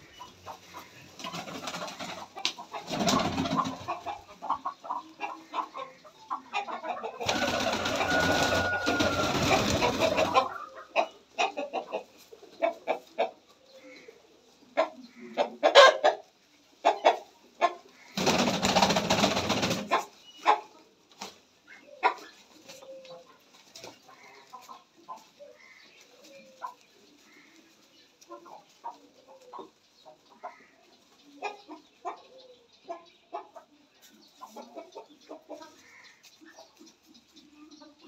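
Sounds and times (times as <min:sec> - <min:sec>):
pigeons flapping wings: 0:02.8 - 0:03.7, 0:07.2 - 0:10.3, 0:18.2 - 0:19.9.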